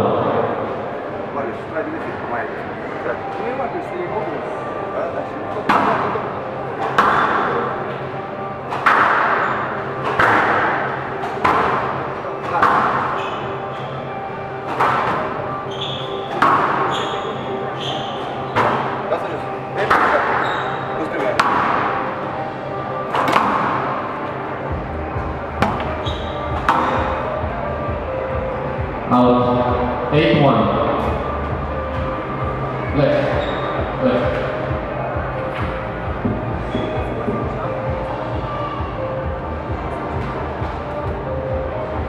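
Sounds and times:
hall background noise: 0.0s - 42.0s
squash ball hits with echo: 6.8s - 7.6s, 8.7s - 13.3s, 14.6s - 15.4s, 16.2s - 17.1s, 21.3s - 22.0s, 23.2s - 24.0s, 25.6s - 27.2s.

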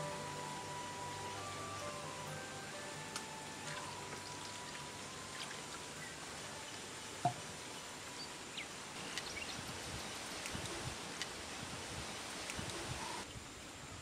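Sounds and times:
faint high chirps: 0.0s - 9.7s.

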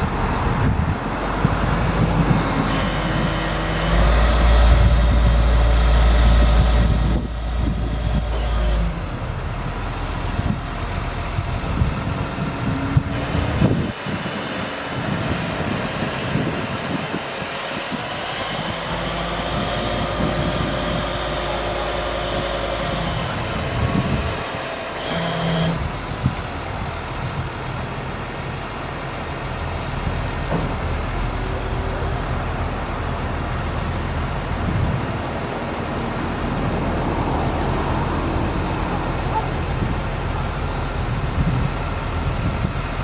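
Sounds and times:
truck engine running: 0.0s - 43.0s
hydraulic whine: 0.4s - 27.7s.

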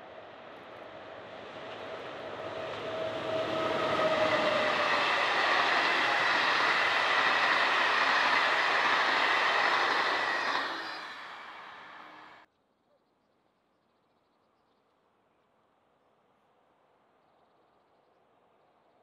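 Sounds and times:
train passing at speed: 0.0s - 12.5s.

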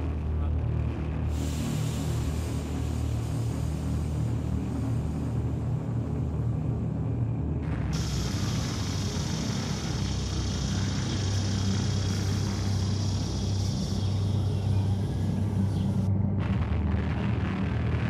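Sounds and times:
low rumbling drone: 0.0s - 18.0s
hiss: 1.3s - 5.7s, 7.9s - 16.1s.

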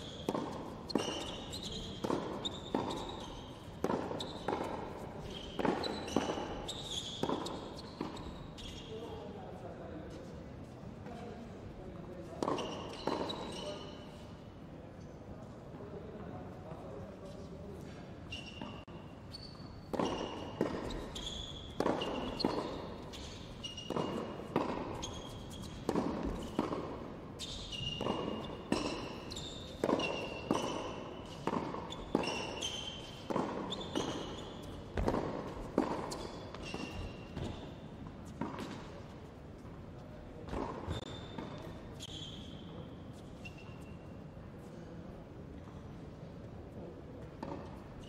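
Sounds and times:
racket striking tennis ball: 0.0s - 8.3s, 19.9s - 37.7s
tennis ball bouncing: 0.0s - 8.7s, 12.4s - 13.6s, 19.9s - 38.9s, 40.4s - 41.8s, 47.4s - 47.8s
sneaker squeaks on court: 0.0s - 9.2s, 12.2s - 14.2s, 18.2s - 38.9s, 40.4s - 44.2s.

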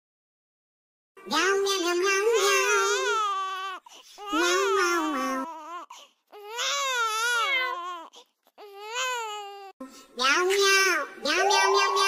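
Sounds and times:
high-pitched crying: 2.3s - 9.8s.

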